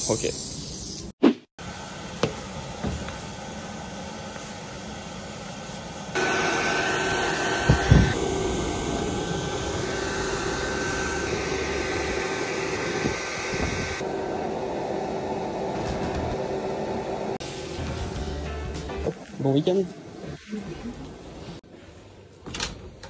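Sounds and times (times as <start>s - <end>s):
electric air blower whirring: 1.6s - 17.8s.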